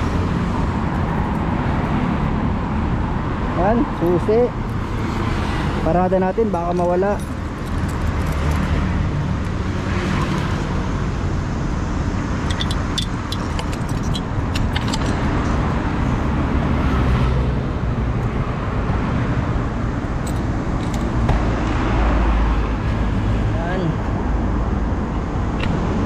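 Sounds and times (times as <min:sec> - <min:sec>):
road traffic passing: 0:00.0 - 0:26.0
padlock and key clicking: 0:12.4 - 0:15.4.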